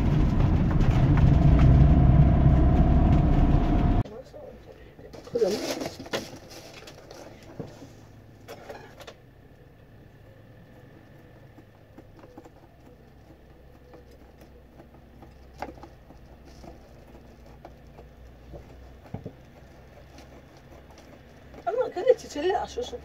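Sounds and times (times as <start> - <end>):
low steady hum: 0.0 - 5.0.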